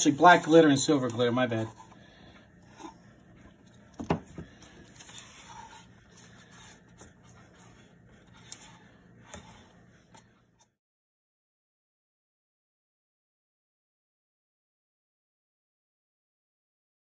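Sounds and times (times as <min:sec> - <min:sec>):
stick scraping a plastic cup: 0:02.6 - 0:10.7.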